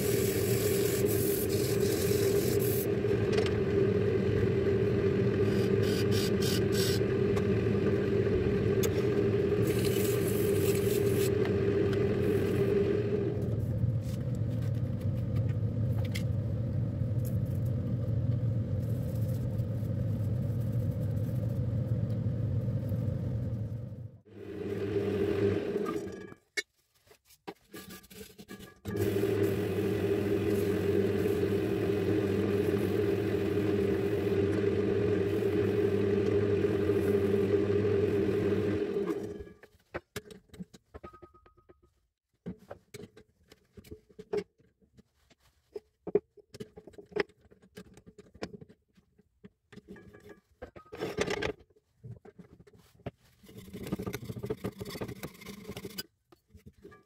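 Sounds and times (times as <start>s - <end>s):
lathe motor running: 0.0s - 13.6s, 24.3s - 26.0s, 28.9s - 39.4s.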